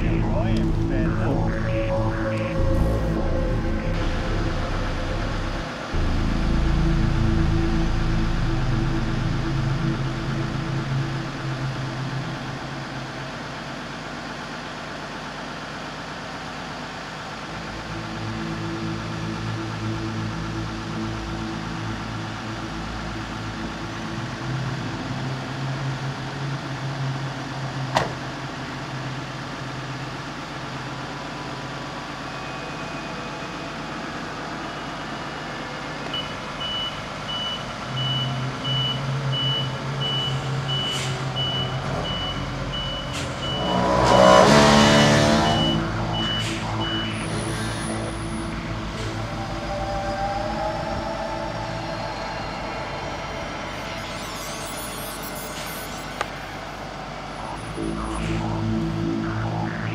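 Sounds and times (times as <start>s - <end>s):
reversing beeper: 0.0s - 13.3s, 31.1s - 59.9s
heavy vehicles idling: 0.0s - 54.2s, 56.2s - 59.9s.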